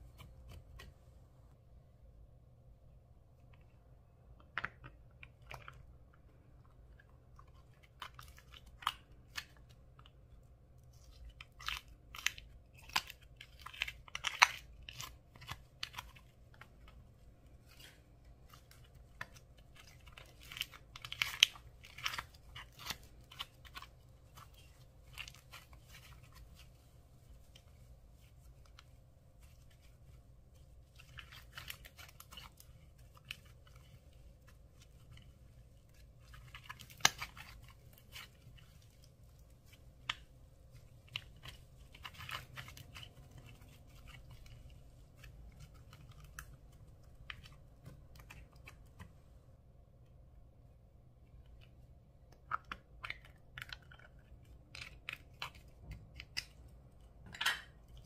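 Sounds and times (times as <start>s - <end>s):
hands squishing slime: 4.4s - 49.4s.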